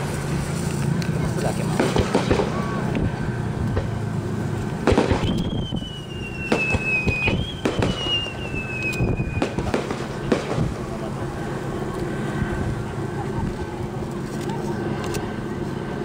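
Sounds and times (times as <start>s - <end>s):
fireworks bangs: 1.5s - 4.2s, 4.8s - 11.2s
fireworks whistles falling in pitch: 4.9s - 10.0s.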